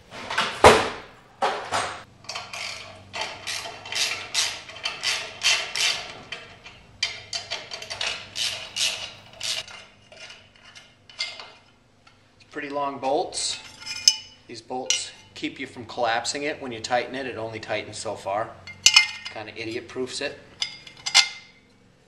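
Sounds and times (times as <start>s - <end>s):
socket ratchet clicking: 3.2s - 9.7s.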